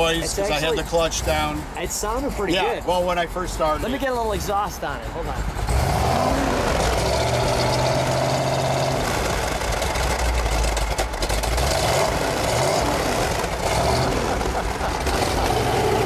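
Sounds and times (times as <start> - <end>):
car engine running: 0.0 - 16.0.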